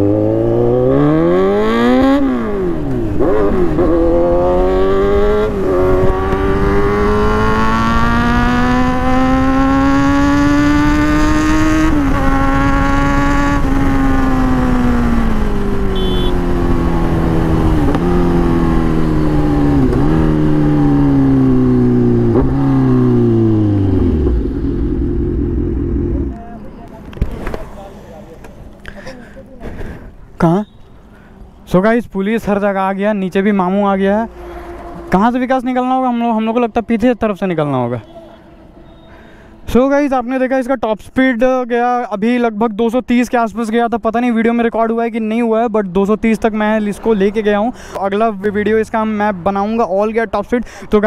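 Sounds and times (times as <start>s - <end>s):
motorcycle engine revving: 0.0s - 26.4s.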